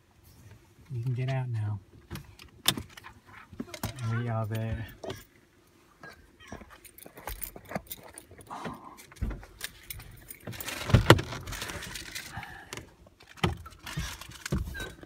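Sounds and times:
clicks and rattles inside a car: 0:00.3 - 0:15.0
thump and rustle: 0:08.5 - 0:09.8, 0:10.4 - 0:12.3.

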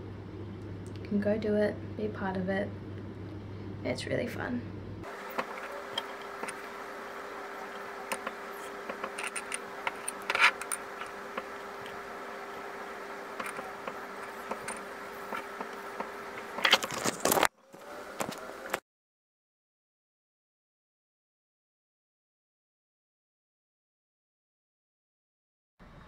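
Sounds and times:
background hum: 0:00.0 - 0:18.8.

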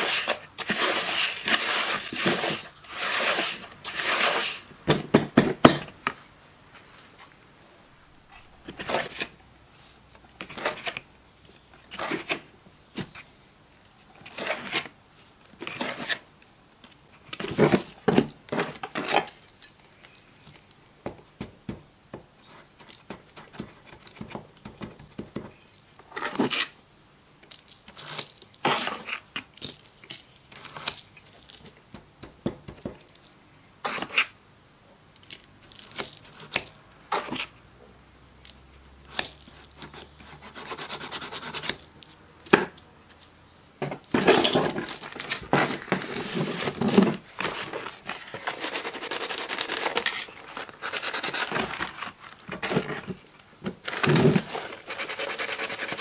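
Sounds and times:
paper rustling and crinkling: 0:08.2 - 0:11.0, 0:44.0 - 0:56.0.

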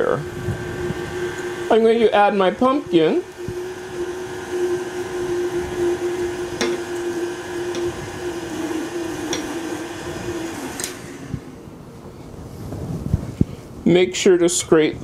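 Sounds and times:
stand mixer running: 0:00.0 - 0:11.6.

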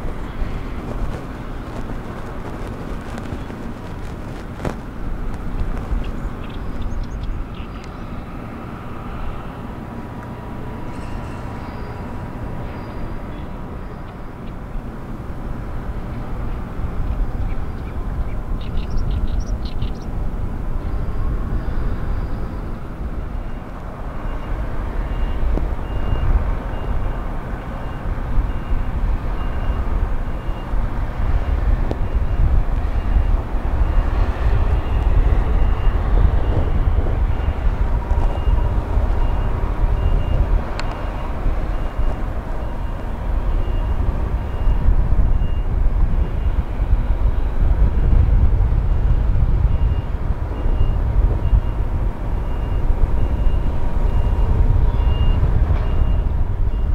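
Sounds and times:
heavy diesel machinery rumbling: 0:20.0 - 0:56.9.

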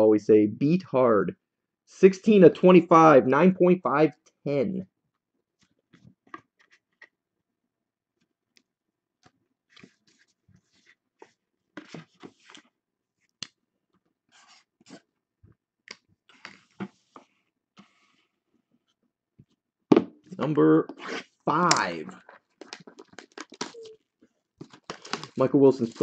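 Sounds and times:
cards rustling: 0:21.0 - 0:24.0, 0:24.6 - 0:26.0.

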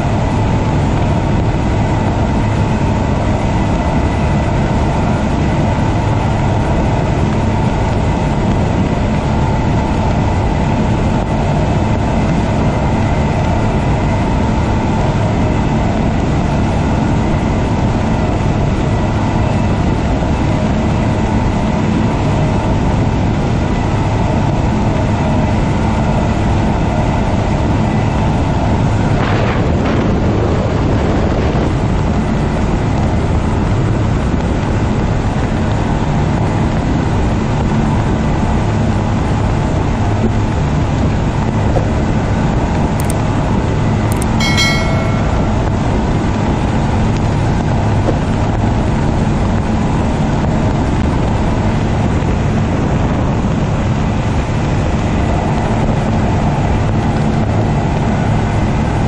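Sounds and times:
rush of boat wake: 0:00.0 - 0:44.2, 0:46.2 - 0:59.0
outboard engines droning: 0:00.0 - 0:59.0
wind: 0:00.0 - 0:59.0
brief high tone: 0:44.1 - 0:46.1.

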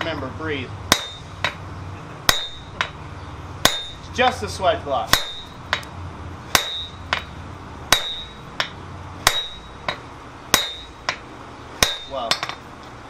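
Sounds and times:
sledgehammer striking metal: 0:00.9 - 0:01.6, 0:02.2 - 0:03.0, 0:03.6 - 0:04.4, 0:05.1 - 0:05.9, 0:06.5 - 0:11.2, 0:11.8 - 0:12.6.

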